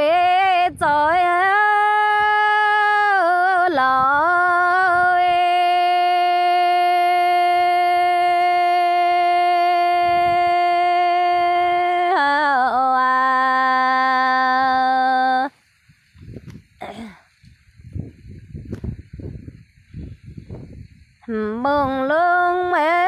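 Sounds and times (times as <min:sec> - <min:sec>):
person singing unaccompanied: 0:00.0 - 0:15.6, 0:21.2 - 0:23.0.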